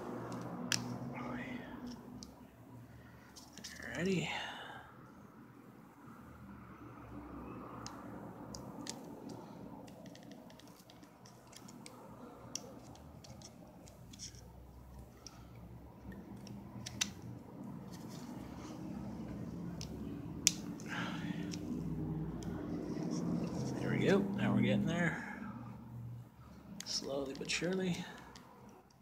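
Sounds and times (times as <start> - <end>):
pliers clicking and snapping: 16.3 - 17.3.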